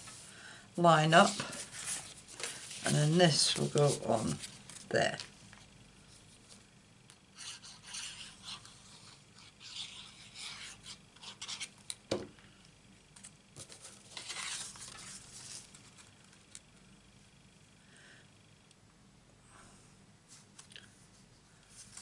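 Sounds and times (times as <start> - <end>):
paper rustling: 1.2 - 5.3, 13.2 - 16.1.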